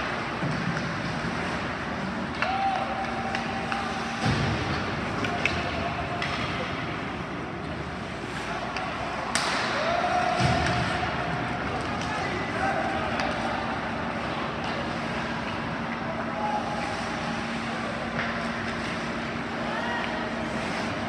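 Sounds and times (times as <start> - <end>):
hockey sticks and puck clacking: 0.0 - 21.0.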